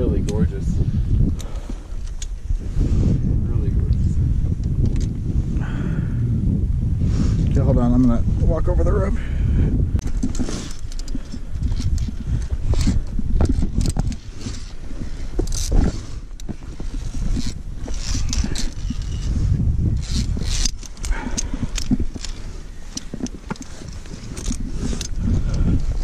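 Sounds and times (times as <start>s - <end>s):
climbing gear clicking: 0.0s - 2.7s, 3.9s - 5.2s, 9.9s - 26.0s
wind buffeting microphone: 0.0s - 26.0s
hands and boots scraping rock: 10.0s - 26.0s.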